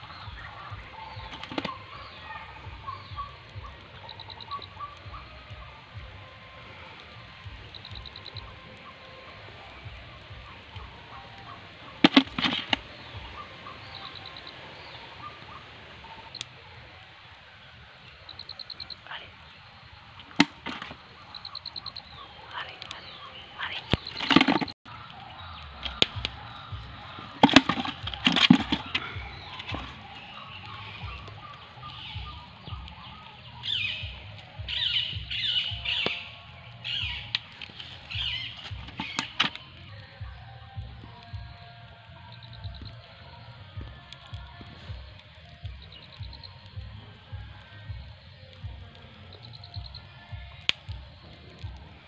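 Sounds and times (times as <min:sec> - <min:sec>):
small birds chirping: 0:00.0 - 0:52.0
sharp knocks and rustles: 0:24.0 - 0:24.8.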